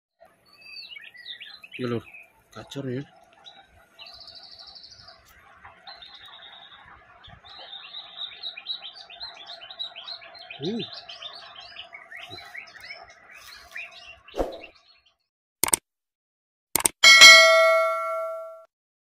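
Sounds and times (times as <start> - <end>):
bird singing trills and whistles: 0.4 - 15.2.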